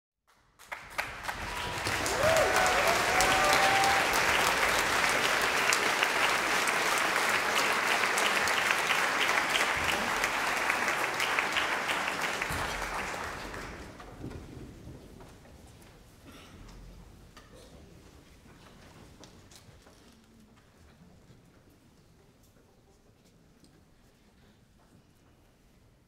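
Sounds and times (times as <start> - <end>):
audience applauding: 0.3 - 14.0.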